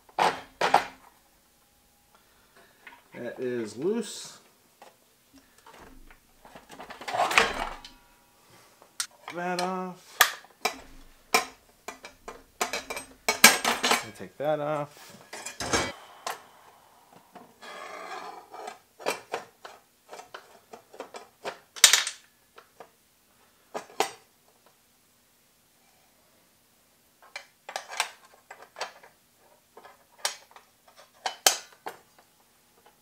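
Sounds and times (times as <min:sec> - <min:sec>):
metal clicks and clinks: 0:10.6 - 0:14.2.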